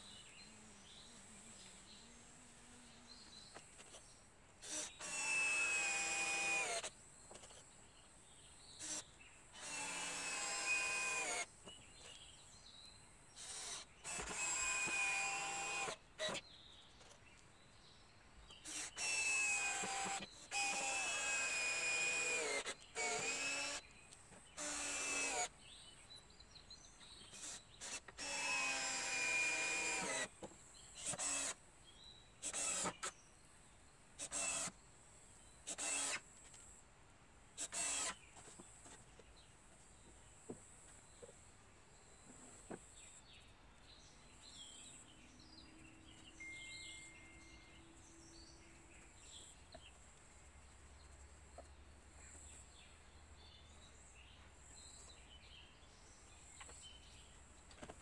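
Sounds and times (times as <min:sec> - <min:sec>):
cordless drill driving screws: 0:04.6 - 0:06.9, 0:08.8 - 0:11.5, 0:13.4 - 0:16.4, 0:18.6 - 0:23.9, 0:24.5 - 0:25.5, 0:27.3 - 0:31.6, 0:32.4 - 0:33.1, 0:34.2 - 0:34.8, 0:35.7 - 0:36.3, 0:37.6 - 0:38.3.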